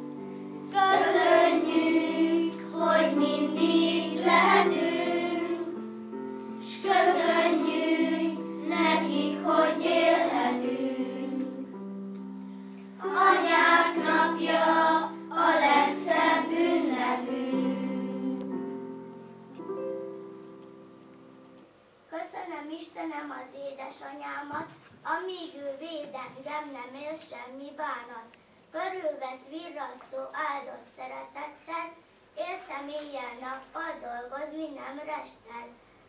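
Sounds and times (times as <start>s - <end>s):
held accompaniment notes: 0.0s - 21.7s
children singing together: 0.6s - 5.8s, 6.6s - 11.7s, 13.0s - 18.6s.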